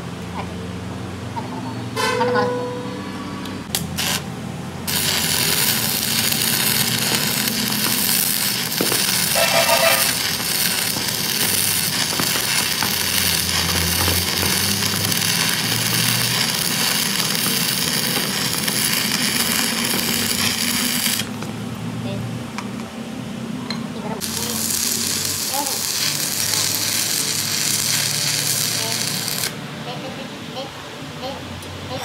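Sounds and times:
arc welding crackle: 3.7s - 21.4s, 24.2s - 29.6s.

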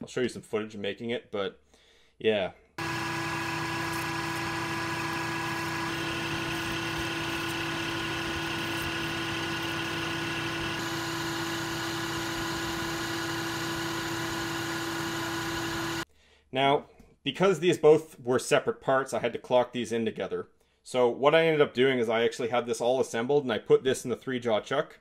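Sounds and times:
metal lathe humming: 2.8s - 16.0s.

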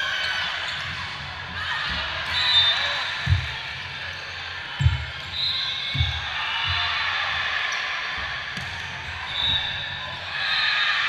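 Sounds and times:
background chatter in hall: 0.0s - 11.0s.

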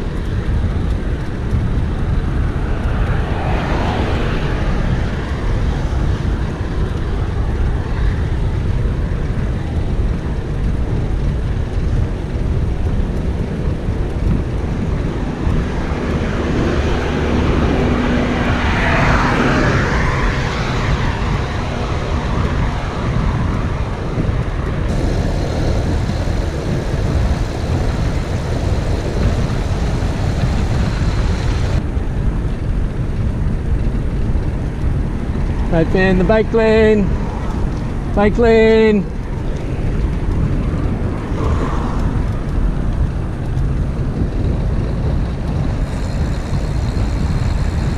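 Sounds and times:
road traffic passing: 0.0s - 47.9s
wind noise on microphone: 0.0s - 47.9s
louder vehicle passing: 1.4s - 8.8s, 14.1s - 32.0s, 35.4s - 47.9s.

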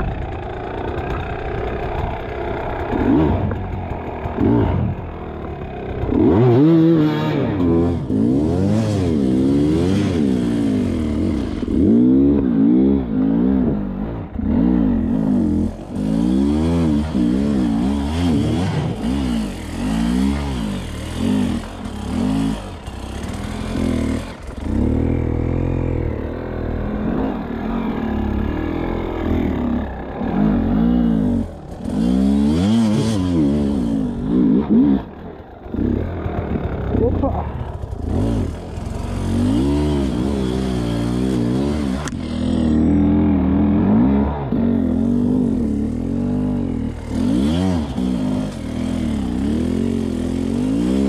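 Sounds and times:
dirt bike engine revving: 0.0s - 51.0s.

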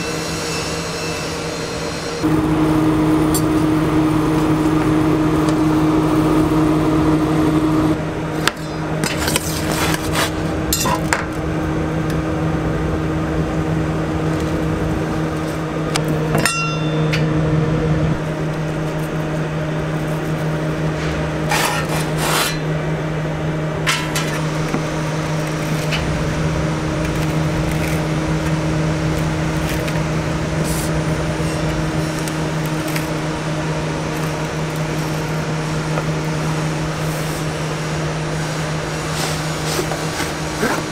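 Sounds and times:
machine hum: 0.0s - 40.9s
blade cutting pizza on board: 21.5s - 22.6s.

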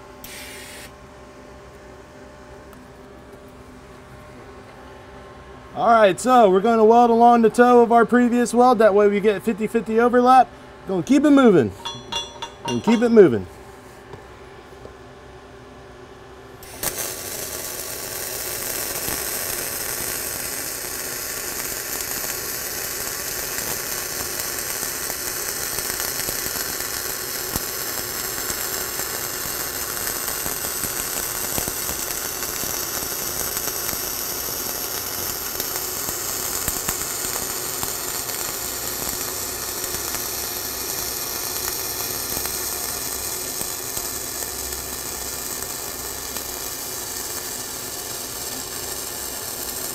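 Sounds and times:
welding arc crackling hiss: 0.0s - 0.9s, 11.0s - 13.4s, 16.6s - 49.9s
spatter pops: 28.4s - 47.6s.

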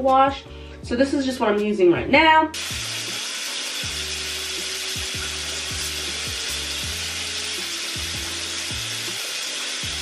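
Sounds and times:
tap water running into sink: 2.6s - 10.0s
hip-hop beat: 3.9s - 10.0s.

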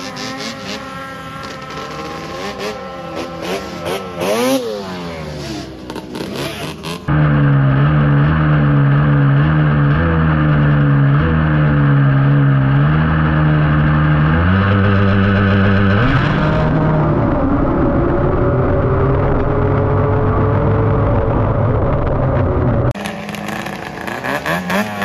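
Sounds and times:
snowmobile engine revving: 0.0s - 25.0s.

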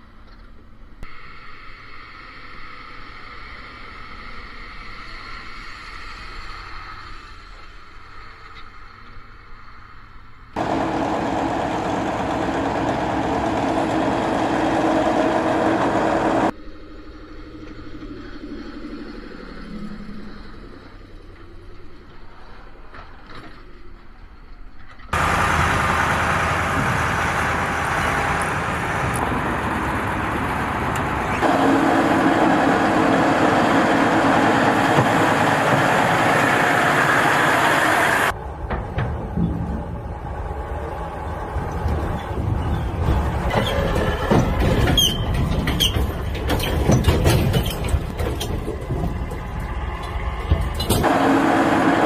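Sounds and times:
heavy trucks driving past: 10.5s - 16.5s, 25.2s - 52.0s.

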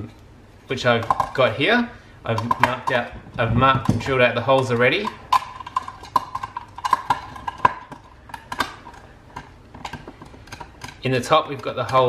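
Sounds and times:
plastic box clicks and knocks: 2.4s - 11.0s.

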